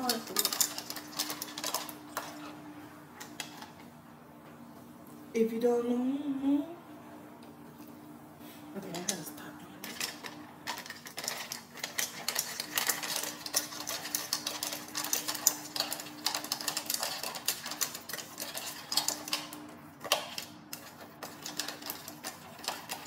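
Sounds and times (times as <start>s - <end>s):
kibble clinking into metal bowl: 0.0s - 2.3s, 9.8s - 19.5s.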